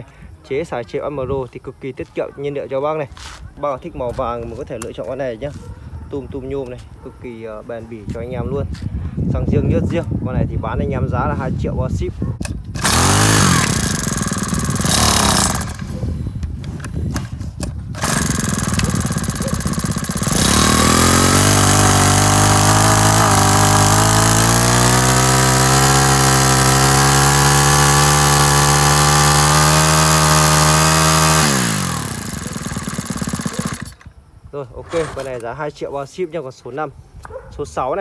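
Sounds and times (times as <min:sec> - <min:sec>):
brush-cutter engine running: 0:12.7 - 0:34.1.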